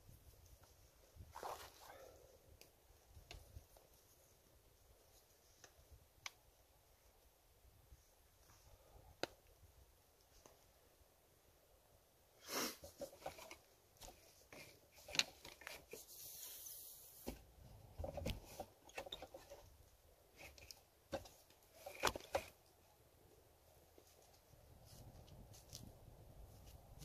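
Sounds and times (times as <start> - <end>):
short hissy rush: 12.4 - 13.0, 16.0 - 17.2
stick being handled: 12.8 - 19.7, 20.3 - 22.8, 23.9 - 27.0.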